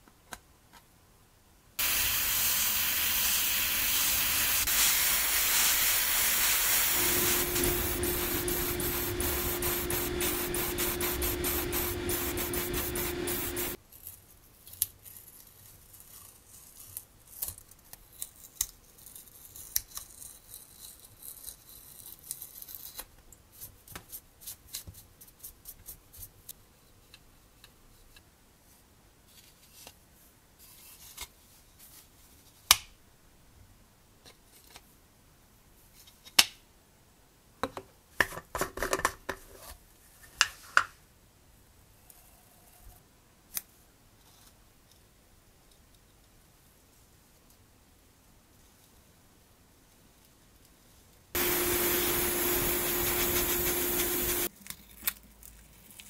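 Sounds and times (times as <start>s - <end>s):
airbrush spraying hiss: 1.8s - 13.8s, 51.4s - 54.5s
steady hum: 1.8s - 13.8s, 51.4s - 54.5s.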